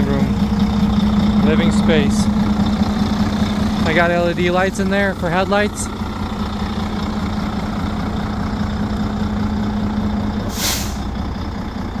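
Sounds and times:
diesel engine idling: 0.0s - 12.0s
air hiss: 10.5s - 11.0s.

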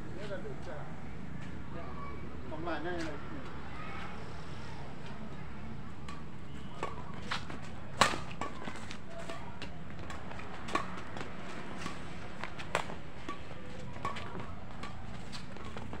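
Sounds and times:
rackets striking shuttlecock: 6.0s - 16.0s.

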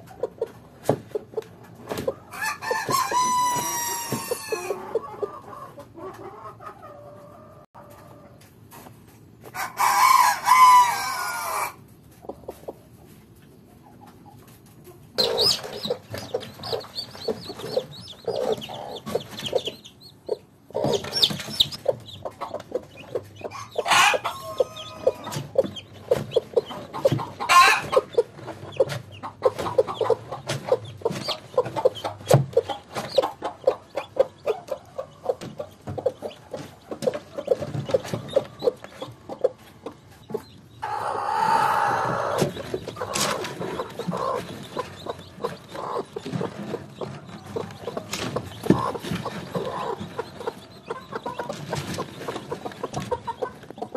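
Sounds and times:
chickens clucking: 0.0s - 53.9s
rooster crowing: 2.3s - 4.8s, 9.6s - 11.8s, 23.5s - 25.3s
chicken squawking: 23.5s - 25.3s, 40.8s - 42.4s.

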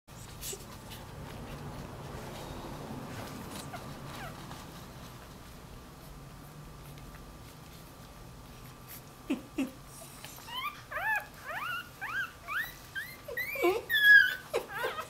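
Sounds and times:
puppy whining: 0.2s - 5.2s, 8.5s - 15.0s
puppy grunting: 9.2s - 15.0s.

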